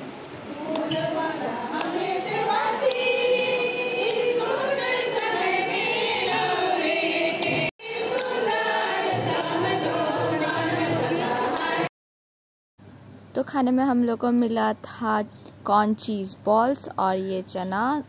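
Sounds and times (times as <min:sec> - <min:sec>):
women singing together: 0:00.5 - 0:11.9.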